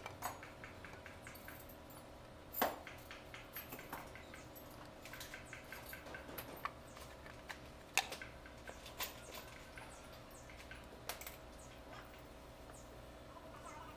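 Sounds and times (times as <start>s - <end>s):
light clicks and taps of engine parts: 0.0s - 12.8s.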